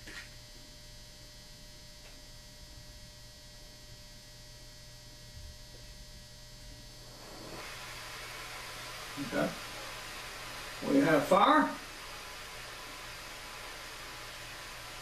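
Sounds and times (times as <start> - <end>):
faint electrical hum: 0.0 - 15.0
propane torch hissing: 6.8 - 15.0.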